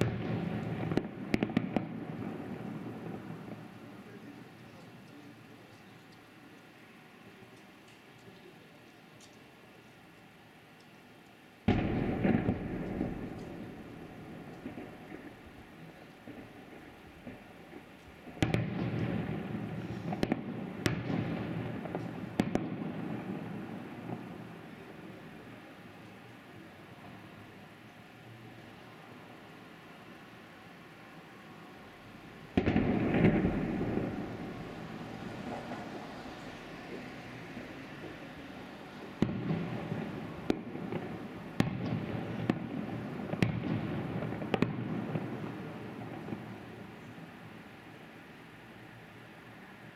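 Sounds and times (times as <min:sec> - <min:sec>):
distant firework bangs: 0:00.0 - 0:05.0, 0:11.7 - 0:25.4, 0:32.5 - 0:38.3, 0:39.1 - 0:47.2
continuous rumble: 0:00.0 - 0:48.7.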